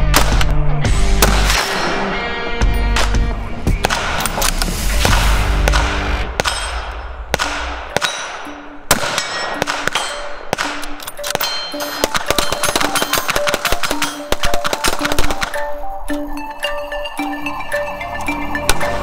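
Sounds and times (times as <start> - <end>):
gunshot cracks: 0.1 - 0.5, 1.2 - 2.1, 3.8 - 10.9
electronic music: 10.6 - 19.0.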